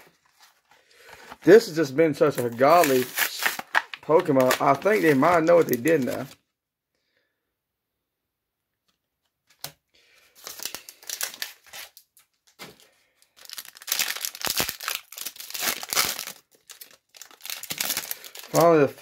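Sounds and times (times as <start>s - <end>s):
foil wrapper crinkling and tearing: 0.0s - 6.4s, 10.3s - 19.0s.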